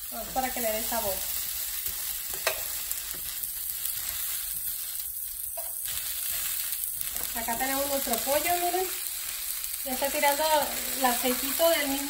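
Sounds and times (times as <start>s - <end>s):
oil sizzling on a griddle: 0.0s - 12.0s
metal tongs tapping: 2.3s - 2.7s.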